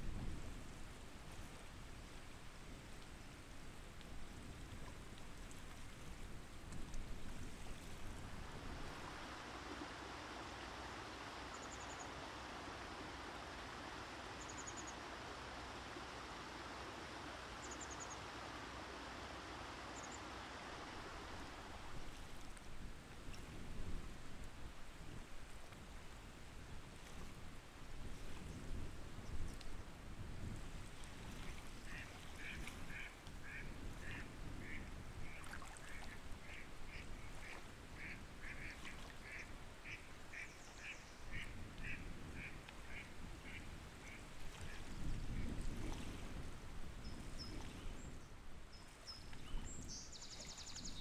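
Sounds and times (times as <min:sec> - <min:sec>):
running water rushing: 0:00.0 - 0:48.1
faint high bird chirps: 0:11.5 - 0:12.1.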